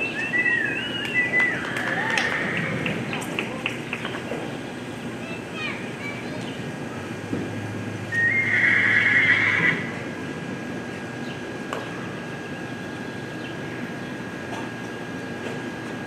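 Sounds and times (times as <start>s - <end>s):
horse neighing: 2.1s - 2.9s, 8.1s - 10.0s.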